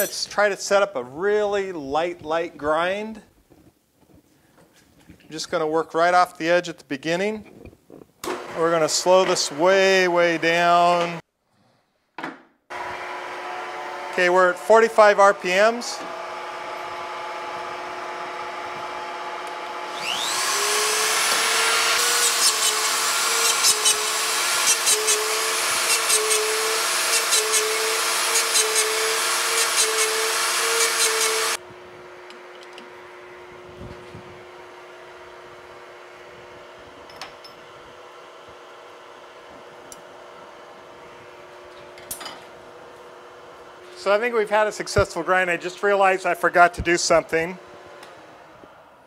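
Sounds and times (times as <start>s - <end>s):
grinder motor hum: 12.7s - 37.1s
stone grinding metal with whine: 19.9s - 31.6s.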